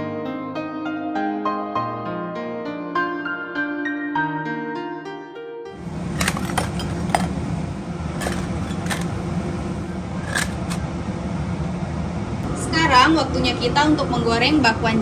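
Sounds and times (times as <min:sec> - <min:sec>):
low kitchen hum: 0:05.8 - 0:14.0.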